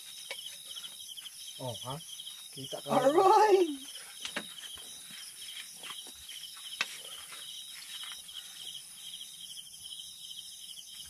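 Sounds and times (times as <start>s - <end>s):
crickets chirping: 0.0s - 11.0s.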